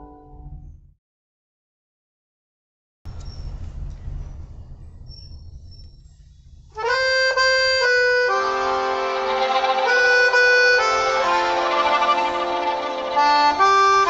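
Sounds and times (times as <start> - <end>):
faint low rumble: 0.1 - 1.0, 3.1 - 6.8
accordion waltz music: 6.8 - 14.0.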